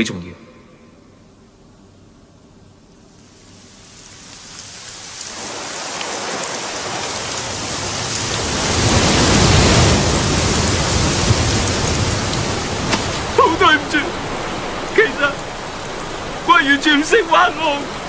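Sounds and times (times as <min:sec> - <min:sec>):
heavy rain: 0:02.9 - 0:18.0.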